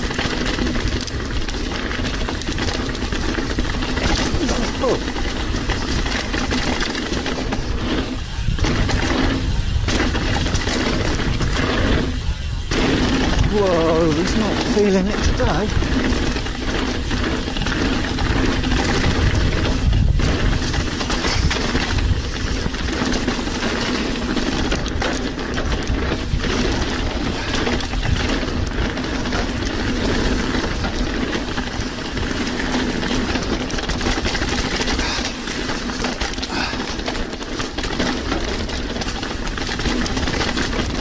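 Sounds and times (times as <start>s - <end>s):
bike frame and chain rattling: 0.0s - 41.0s
tyre rumble: 0.0s - 41.0s
wind buffeting microphone: 2.3s - 32.7s.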